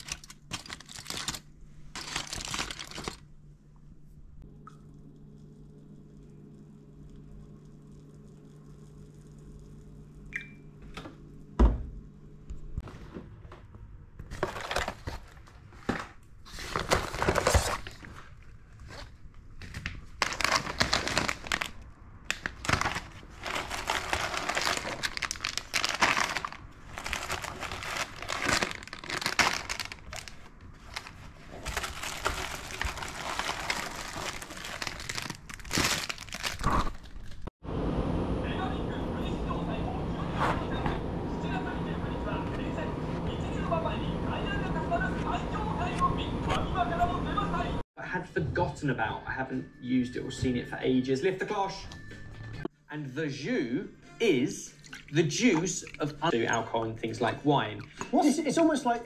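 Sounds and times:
plastic bags rustling and crinkling: 0.0 - 3.2, 14.3 - 37.5
low steady hum: 0.0 - 47.8.

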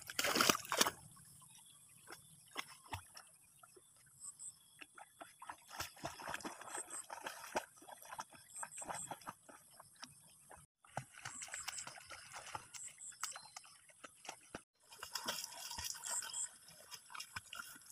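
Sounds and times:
dog splashing through water: 0.0 - 1.0, 4.8 - 10.1, 10.8 - 17.9.

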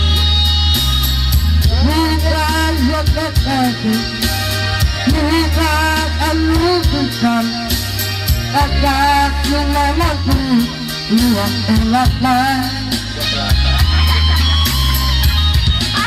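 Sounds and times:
man singing into microphone: 0.0 - 4.2, 5.0 - 7.8, 8.5 - 13.6
amplified backing music: 0.0 - 16.0.

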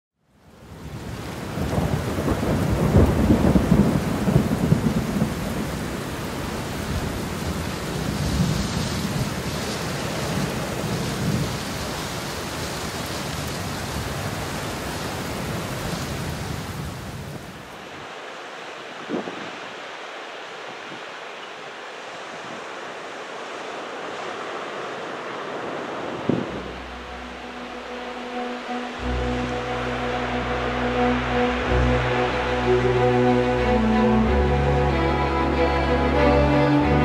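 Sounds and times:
heavy rain: 0.3 - 37.0
rolling thunder: 1.4 - 6.1.

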